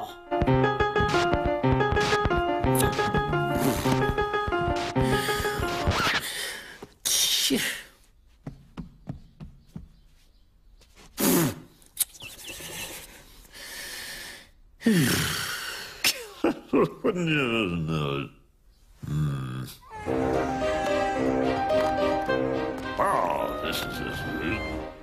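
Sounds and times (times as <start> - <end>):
record player music: 0.3 - 6.2.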